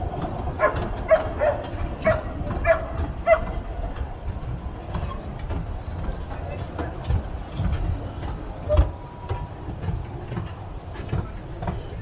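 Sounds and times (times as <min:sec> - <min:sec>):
railway carriages rumbling past: 0:00.0 - 0:12.0
dog barking: 0:00.6 - 0:03.5.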